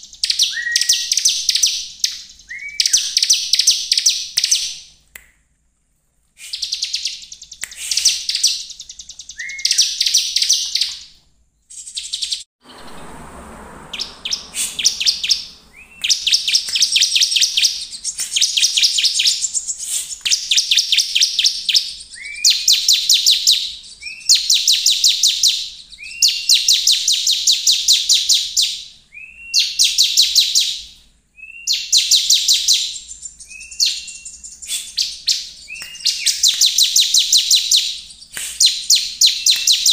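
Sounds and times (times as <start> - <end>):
bird trilling song: 0.0 - 4.9, 6.4 - 39.9.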